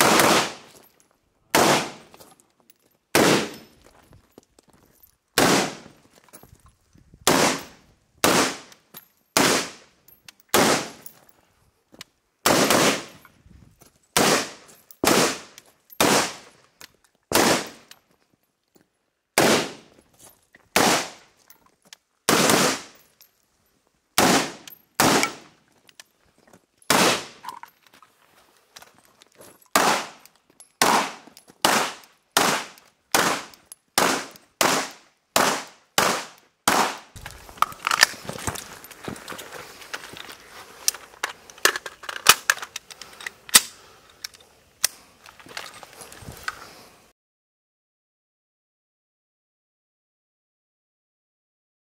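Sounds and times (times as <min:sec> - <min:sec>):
gunshots with echo: 0:00.0 - 0:00.6, 0:01.6 - 0:02.0, 0:03.2 - 0:03.6, 0:07.3 - 0:08.7, 0:30.8 - 0:37.1.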